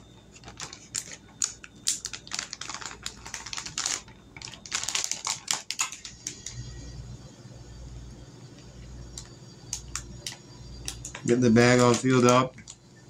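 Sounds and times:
plastic bag crinkling: 0:00.3 - 0:06.6.

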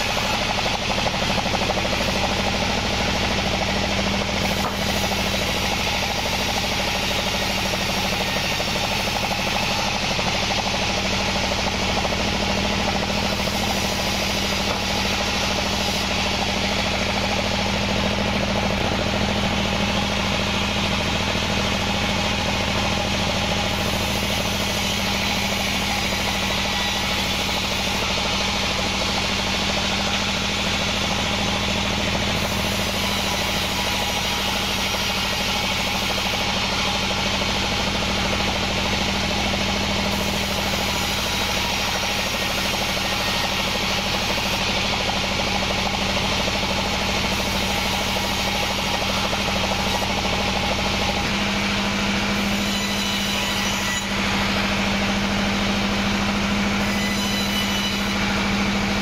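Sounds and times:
band saw cutting wood: 0:00.0 - 0:59.0.

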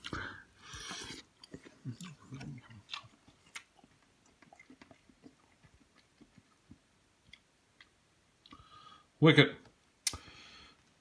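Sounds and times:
person chewing: 0:00.0 - 0:08.7.

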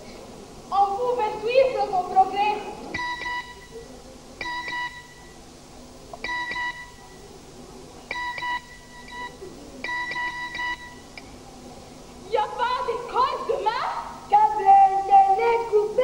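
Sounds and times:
phone ringtone pulsing beeps: 0:03.0 - 0:03.7, 0:04.4 - 0:05.3, 0:06.2 - 0:07.0, 0:08.1 - 0:11.1.

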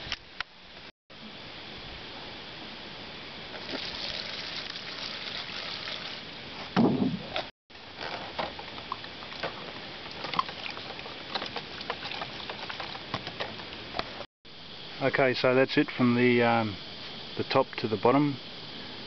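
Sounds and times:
liquid pouring into plastic tub: 0:03.6 - 0:06.2
thud: 0:06.8 - 0:07.3
small splashes: 0:10.1 - 0:13.9.

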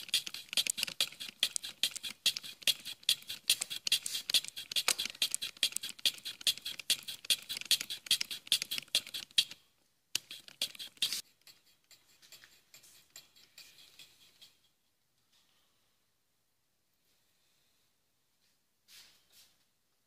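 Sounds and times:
broaching tool scraping metal: 0:00.0 - 0:09.6, 0:10.2 - 0:14.8.

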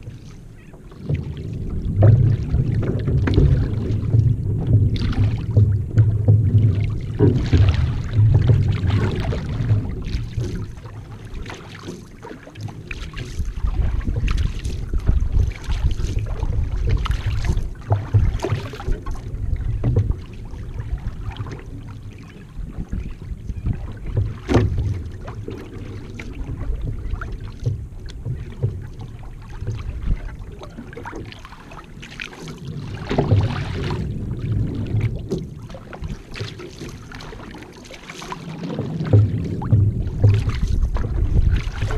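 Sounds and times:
paddle strokes in water: 0:00.0 - 0:41.9
water splashing along hull: 0:00.0 - 0:41.9
wind rumbling on microphone: 0:00.0 - 0:41.9.

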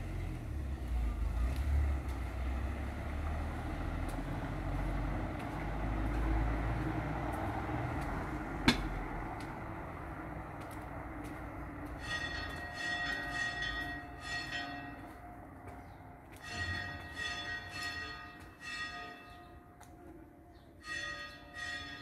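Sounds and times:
church bells ringing: 0:11.8 - 0:22.0.

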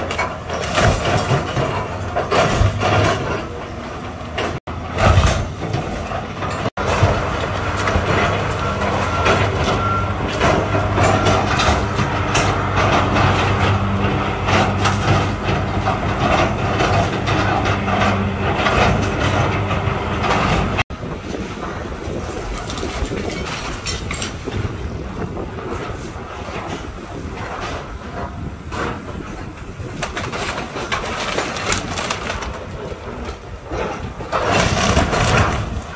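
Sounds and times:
clattering debris: 0:00.0 - 0:35.9
excavator diesel engine: 0:00.0 - 0:35.9
splintering timber cracking: 0:21.7 - 0:35.9.

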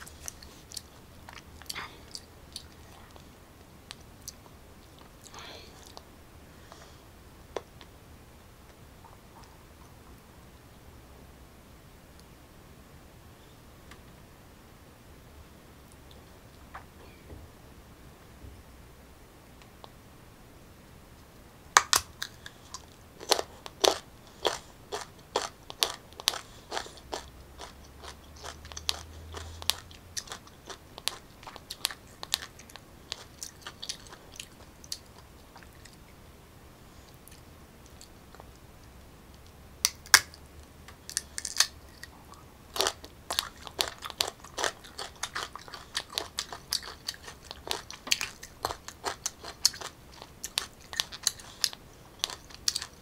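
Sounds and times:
crunchy chewing: 0:00.0 - 0:06.1, 0:21.8 - 0:36.2, 0:39.9 - 0:53.0.

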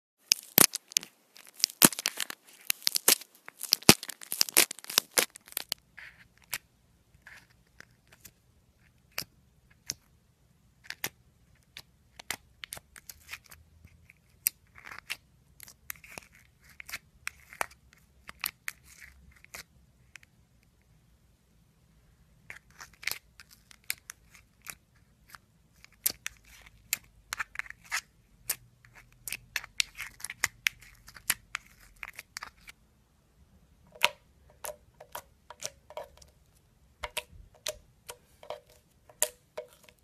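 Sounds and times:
slime crackling and popping: 0:00.2 - 0:05.8.

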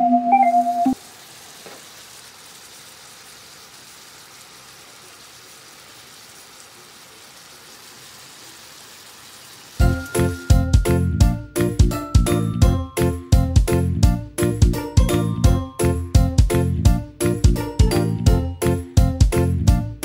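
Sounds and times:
keyboard music notes: 0:00.0 - 0:01.0, 0:09.8 - 0:20.0
food sizzling on a hot plate: 0:00.6 - 0:19.6.

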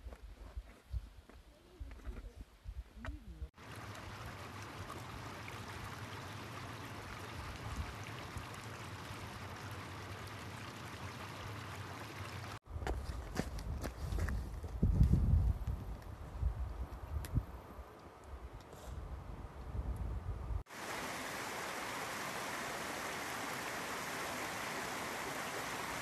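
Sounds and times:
mountain stream babbling: 0:03.6 - 0:12.6, 0:20.7 - 0:26.0
wind buffeting microphone: 0:13.3 - 0:17.7.

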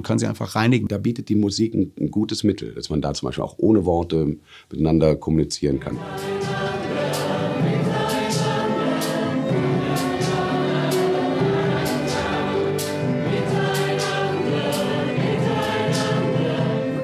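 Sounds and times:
choir singing held notes: 0:05.9 - 0:17.0.

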